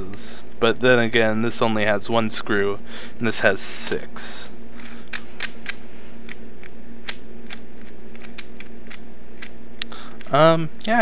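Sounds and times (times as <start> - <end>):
puzzle cube clicking: 4.8 - 10.4.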